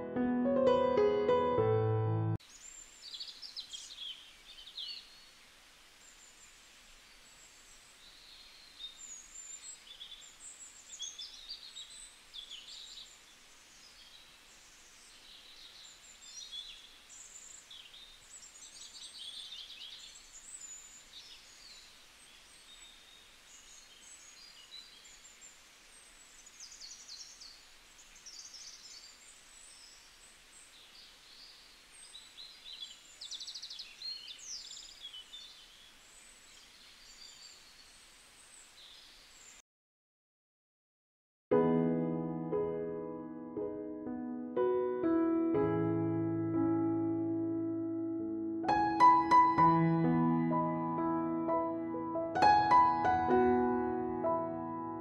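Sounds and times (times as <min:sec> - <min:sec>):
faint hiss: 0:02.4 - 0:39.6
birds chirping and trilling: 0:02.5 - 0:39.6.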